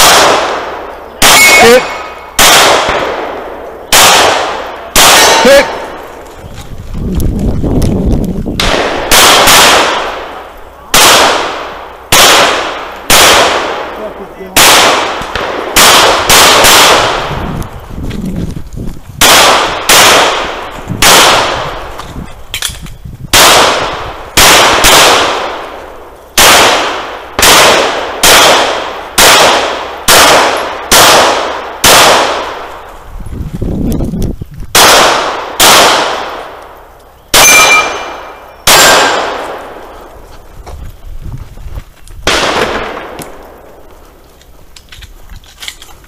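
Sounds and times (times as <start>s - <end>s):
pistol shots echoing: 0.0s - 6.1s, 8.6s - 17.4s, 19.2s - 21.9s, 23.3s - 32.8s, 34.7s - 40.0s, 42.2s - 43.8s.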